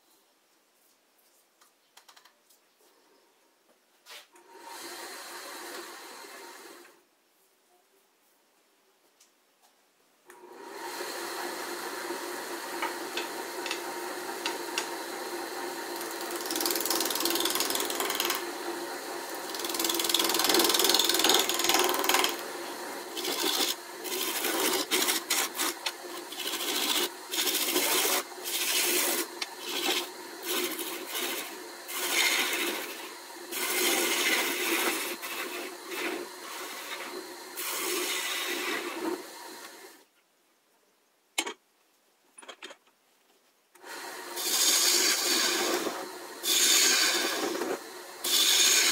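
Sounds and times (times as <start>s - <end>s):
lathe motor hum: 10.5s - 39.8s, 43.8s - 48.9s
gouge scraping spinning wood: 12.8s - 39.3s, 44.4s - 48.9s.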